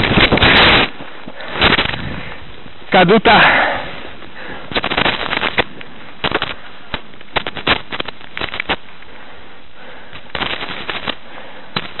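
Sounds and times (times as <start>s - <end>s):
microphone wind crackling: 0.0s - 3.0s
steady hiss: 0.0s - 12.0s.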